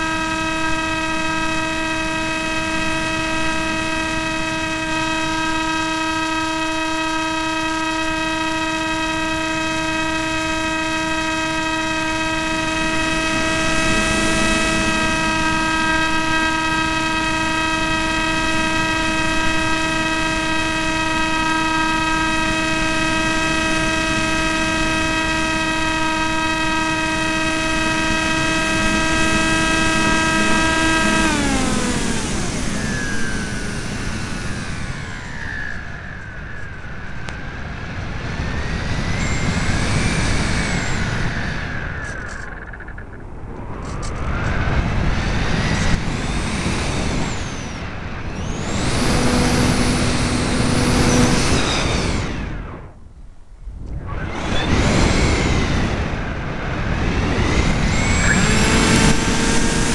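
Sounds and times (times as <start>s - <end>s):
electric motor and propeller whine: 0.0s - 59.9s
rush of air noise: 12.0s - 59.9s.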